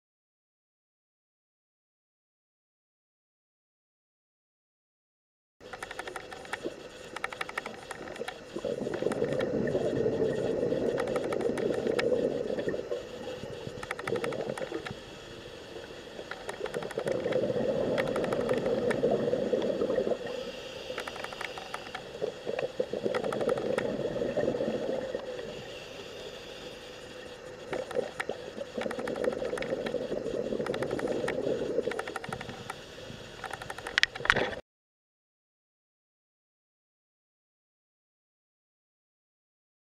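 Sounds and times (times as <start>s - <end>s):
sharp clicks: 5.7s - 9.6s, 10.8s - 12.2s, 13.6s - 15.0s, 16.2s - 19.1s, 20.9s - 24.0s, 30.6s - 32.8s, 33.4s - 34.6s
regulator inhalation hiss: 5.7s - 34.0s
exhaled bubbles rushing underwater: 7.6s - 26.7s, 27.3s - 33.3s.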